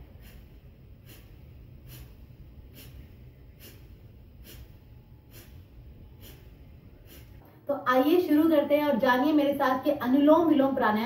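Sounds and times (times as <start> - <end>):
forceful nasal exhalations: 0.0 - 7.5.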